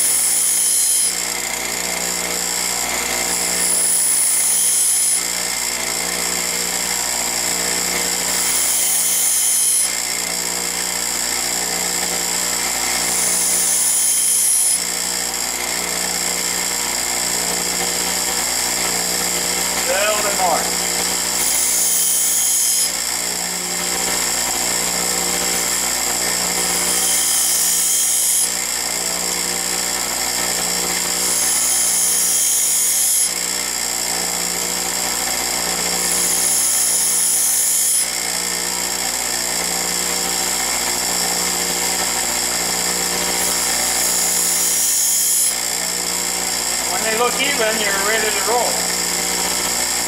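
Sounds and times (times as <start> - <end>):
drill bit grinding hiss: 0.0 - 5.4, 8.2 - 10.0, 19.2 - 22.9
bench grinder motor running: 0.0 - 50.0.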